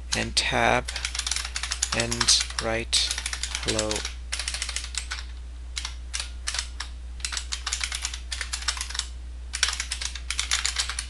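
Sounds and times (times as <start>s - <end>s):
steady low hum: 0.0s - 11.0s
keyboard key clicks: 1.2s - 5.2s.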